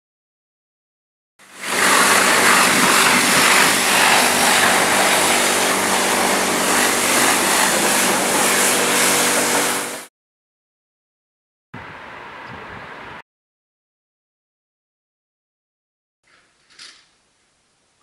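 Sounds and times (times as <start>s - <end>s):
water spraying onto car: 1.4s - 10.1s.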